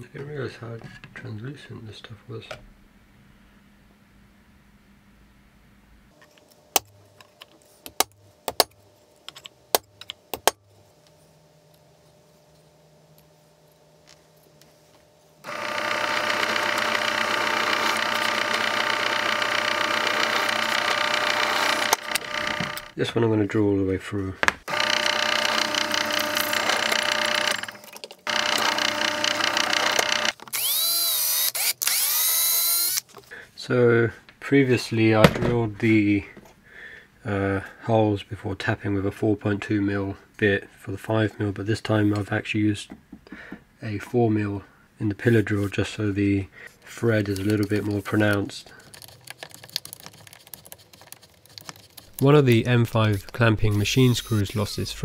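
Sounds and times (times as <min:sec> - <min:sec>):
cordless drill motor: 0:15.4 - 0:23.0, 0:24.7 - 0:33.1, 0:52.0 - 0:55.0
pillar drill whirring: 0:15.4 - 0:23.0, 0:24.6 - 0:33.0, 0:52.0 - 0:55.0.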